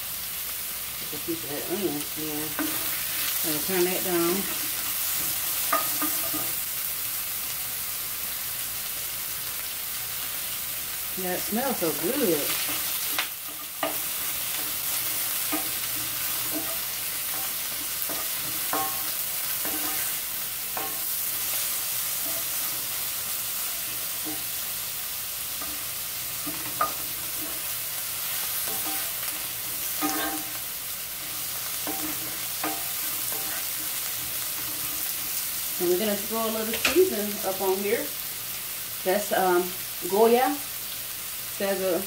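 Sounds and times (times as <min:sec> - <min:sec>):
onions sizzling in a skillet: 0:00.0 - 0:42.0
wooden spoon scraping a pan: 0:01.3 - 0:06.6, 0:11.5 - 0:24.6, 0:25.5 - 0:37.0.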